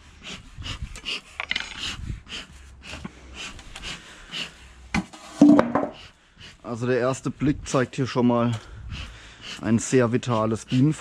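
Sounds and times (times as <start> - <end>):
knock: 5.0 - 6.0
bellows puffing: 8.4 - 11.0.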